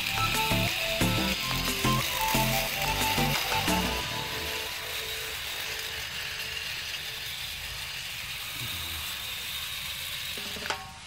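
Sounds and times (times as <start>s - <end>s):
model train motor whirr and rattle: 0.0s - 11.0s.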